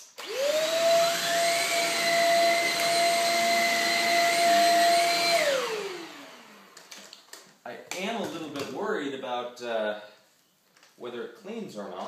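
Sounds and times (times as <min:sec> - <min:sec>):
vacuum motor whine: 0:00.2 - 0:06.9.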